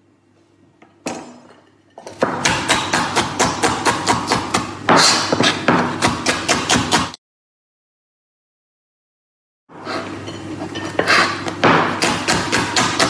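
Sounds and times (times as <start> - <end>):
knife chopping on cutting board: 2.0 - 7.2, 10.9 - 13.0.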